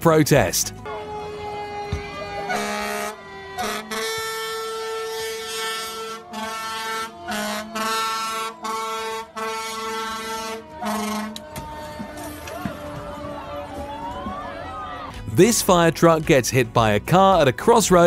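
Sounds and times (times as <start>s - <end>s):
fire truck air horn blasts: 0.8s - 13.9s.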